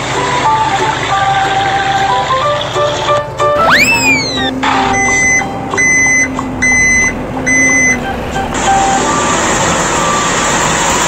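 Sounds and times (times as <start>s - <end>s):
reversing alarm beeping: 3.6s - 10.6s.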